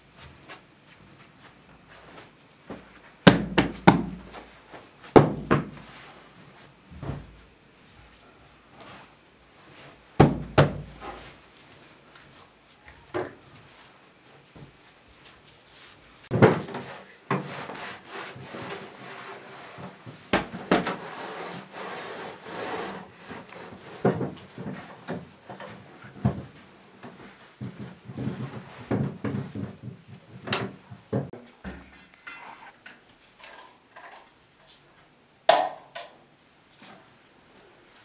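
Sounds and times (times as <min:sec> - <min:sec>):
furniture knocks and scrapes: 0:06.9 - 0:07.4, 0:19.8 - 0:21.0, 0:23.2 - 0:31.8
cloth rubbing wall: 0:08.2 - 0:12.8, 0:13.5 - 0:30.4.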